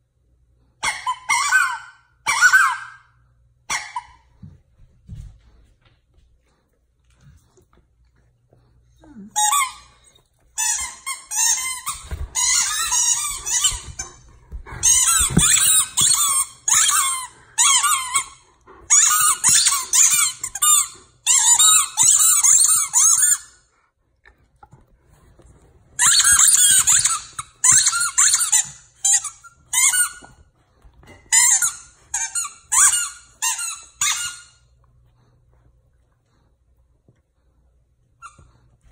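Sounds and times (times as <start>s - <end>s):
dog toy squeaker squeaking: 0.8s - 3.0s, 10.6s - 14.1s, 14.8s - 23.5s, 26.0s - 30.3s, 31.3s - 34.6s.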